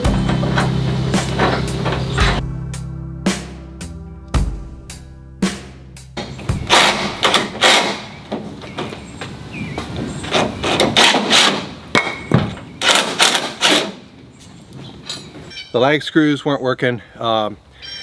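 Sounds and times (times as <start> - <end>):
metallic knocks: 6.2 - 14.0.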